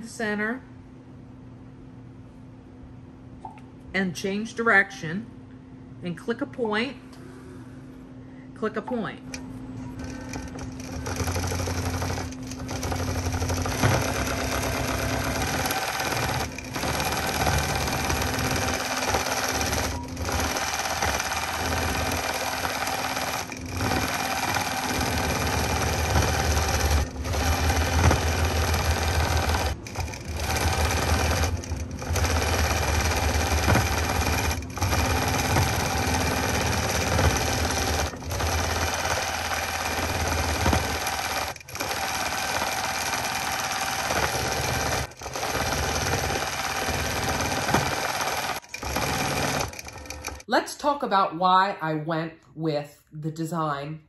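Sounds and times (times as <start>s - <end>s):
quilting machine stitching: 9.8s - 50.5s.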